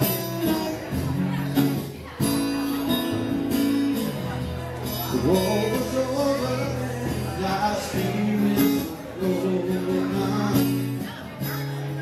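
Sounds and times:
man singing: 0.0 - 1.5, 4.8 - 12.0
guitar playing: 0.0 - 12.0.

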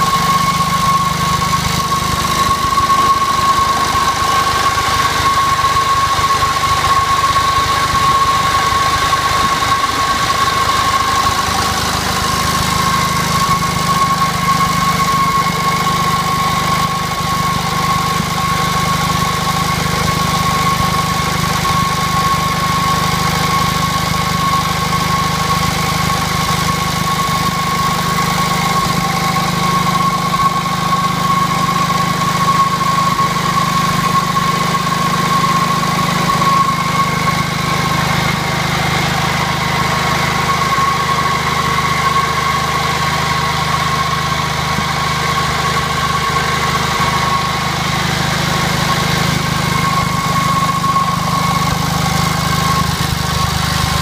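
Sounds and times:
generator engine running: 0.0 - 54.0
high-pitched whine: 0.0 - 54.0.

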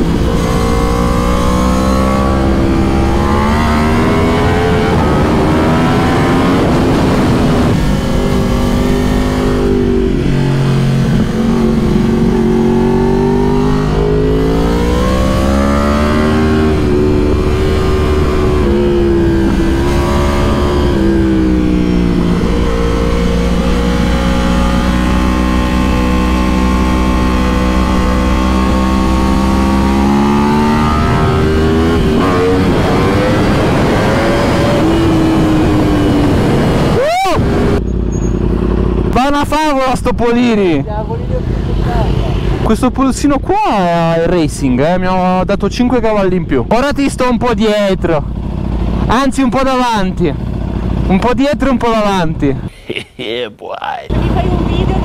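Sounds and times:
wind rush on microphone: 0.0 - 39.0
motorcycle engine revving: 0.0 - 52.7.

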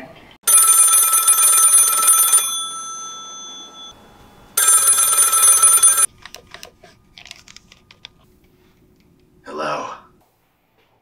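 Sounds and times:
desk phone ringing: 0.5 - 6.1.

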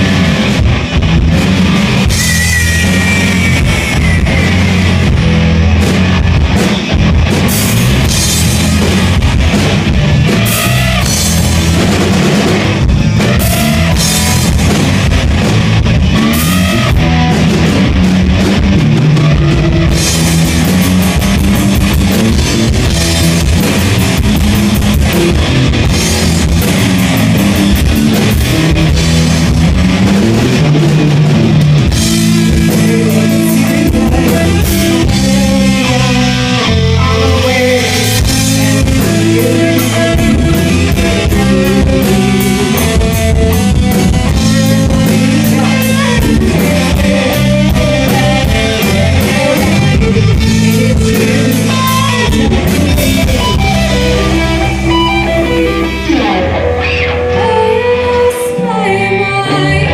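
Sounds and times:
bass guitar: 0.0 - 59.9
drum kit: 0.0 - 59.9
electric guitars: 0.0 - 59.9
high falling pitch glide: 1.9 - 5.6.

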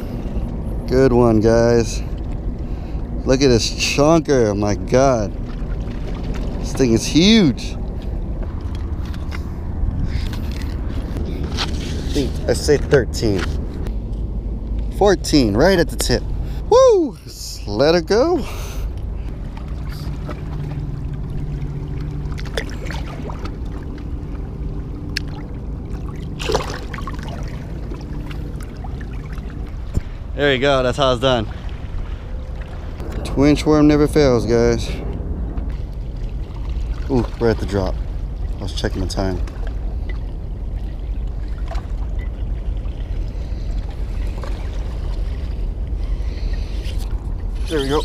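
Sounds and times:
steady low rumble: 0.0 - 48.0
wind buffeting microphone: 0.0 - 48.0
water lapping against rocks: 18.7 - 33.2
fish splash: 25.0 - 29.5.

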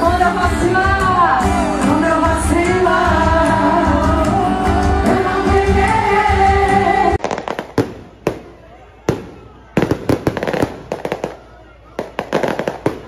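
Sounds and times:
devotional singing over beat: 0.0 - 7.4.

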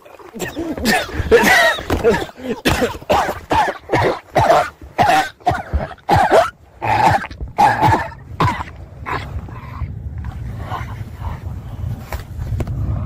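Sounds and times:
harsh cough-like vocal bursts: 0.4 - 9.2.

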